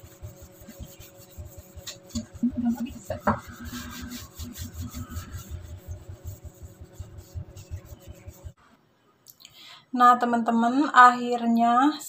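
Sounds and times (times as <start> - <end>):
hand scrubbing greasy metal: 0.0 - 8.6.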